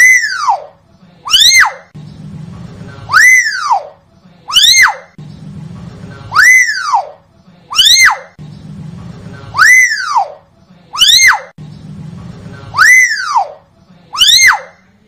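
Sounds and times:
myna shrill whistled calls: 0.0 - 1.9, 3.1 - 5.1, 6.3 - 8.4, 9.5 - 10.4, 11.0 - 11.5, 12.7 - 14.8.

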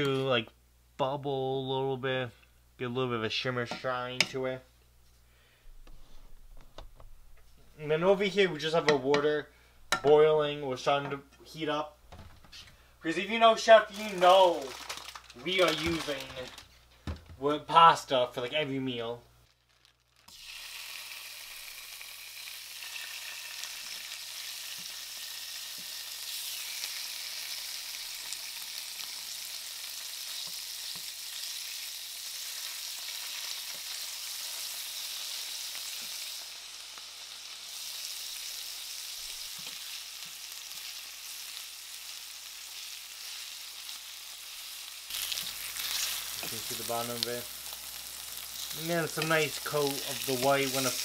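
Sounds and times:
chicken sizzling in pan: 19.8 - 51.0.

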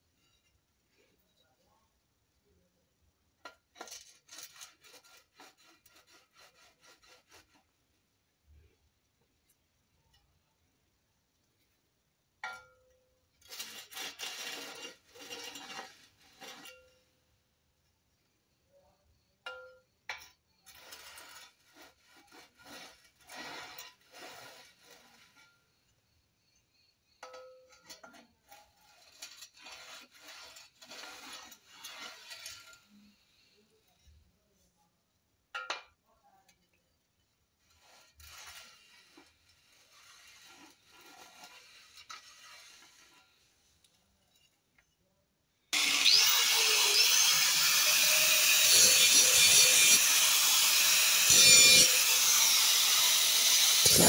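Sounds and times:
metal scraping along rails: 3.4 - 7.8, 13.3 - 17.2, 19.5 - 26.6, 27.2 - 34.6, 36.6 - 45.0, 45.6 - 54.0.

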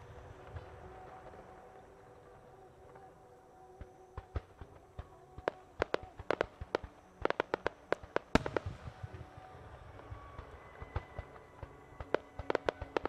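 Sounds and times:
firework bangs and pops: 4.2 - 9.5.

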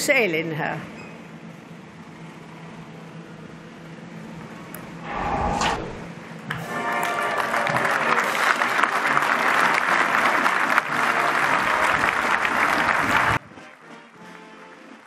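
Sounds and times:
large crowd applauding: 6.7 - 14.7.

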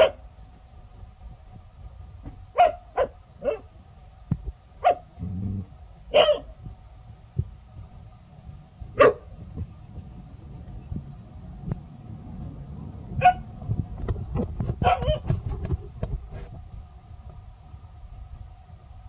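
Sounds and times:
dog barking: 0.0 - 0.2, 2.5 - 3.7, 4.8 - 5.1, 6.1 - 6.5, 9.0 - 9.3, 13.2 - 13.5, 14.8 - 15.3.

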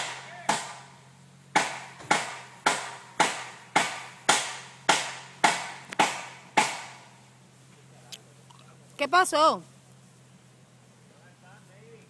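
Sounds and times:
low steady hum: 0.0 - 12.0
sharp ringing knocks: 1.5 - 7.1.

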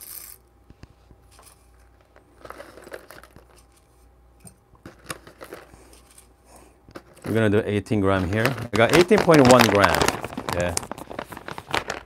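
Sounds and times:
coffee beans clicking in metal cup: 0.0 - 0.4, 2.4 - 3.7, 4.8 - 5.8.

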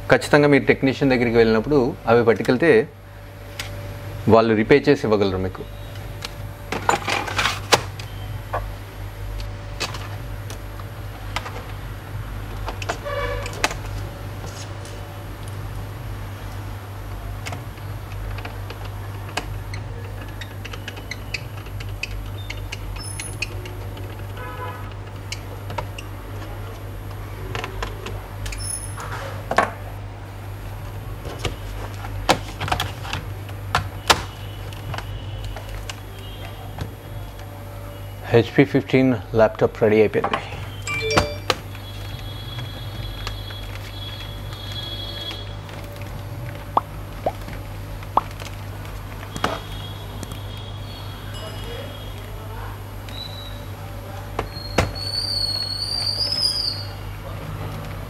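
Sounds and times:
brief pitched squeak: 40.9 - 41.5.

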